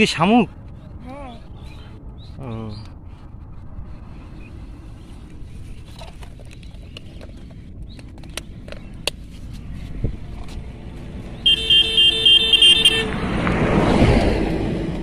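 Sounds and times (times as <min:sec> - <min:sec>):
vehicle horn beeping rapidly: 0:11.4 - 0:13.1.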